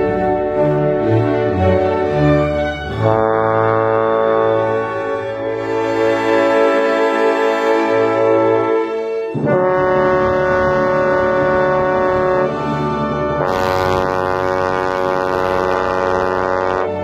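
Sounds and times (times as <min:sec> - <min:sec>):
bass trombone low notes: 0:00.0 - 0:17.0.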